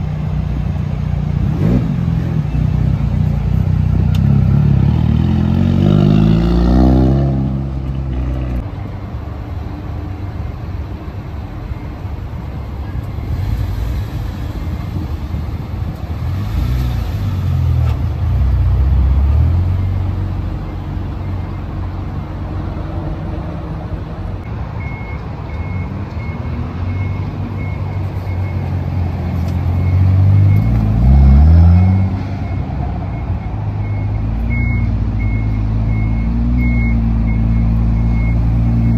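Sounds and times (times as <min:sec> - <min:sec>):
car engines revving: 0:00.0 - 0:38.9
vehicle reversing beeper: 0:11.6 - 0:15.4, 0:18.9 - 0:22.1, 0:24.8 - 0:38.9.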